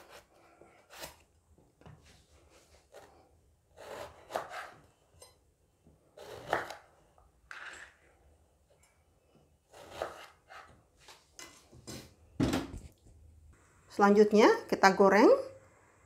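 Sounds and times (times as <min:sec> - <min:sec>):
knife slicing on wooden board: 0:03.8 - 0:04.8, 0:09.7 - 0:10.7.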